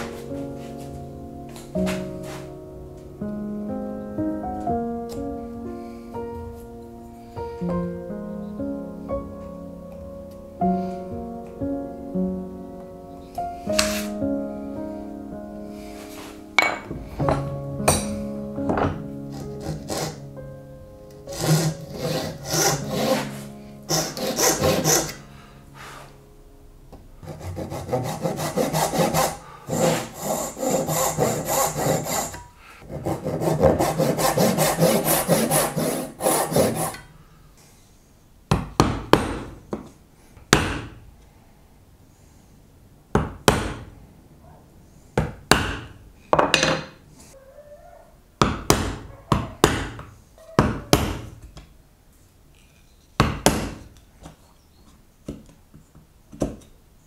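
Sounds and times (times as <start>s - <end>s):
backsaw rasping through wood: 19.3s - 20.2s, 21.3s - 25.2s, 27.2s - 37.1s.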